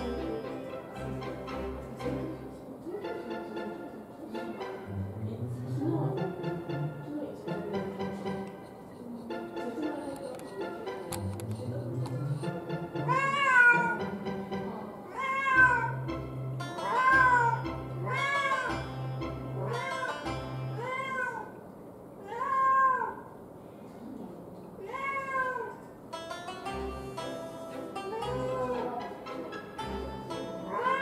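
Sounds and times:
background music: 0.0s - 20.9s, 26.1s - 31.0s
cat meowing: 13.1s - 14.0s, 15.1s - 16.0s, 16.8s - 18.7s, 20.8s - 21.6s, 22.2s - 23.3s, 24.8s - 25.8s, 30.7s - 31.0s.

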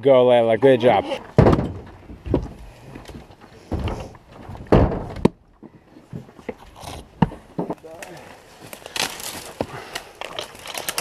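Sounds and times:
maul striking wood rounds: 1.0s - 8.1s.

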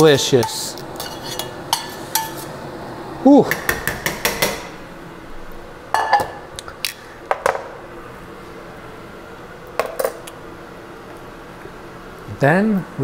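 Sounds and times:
utensils clinking on metal pot: 0.4s - 2.5s.

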